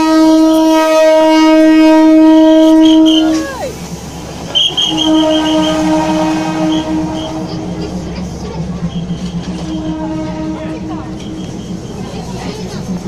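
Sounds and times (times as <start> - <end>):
train horn blast: 0.0 - 3.5, 4.5 - 8.1, 9.0 - 11.8
train passing rumble: 0.0 - 13.0.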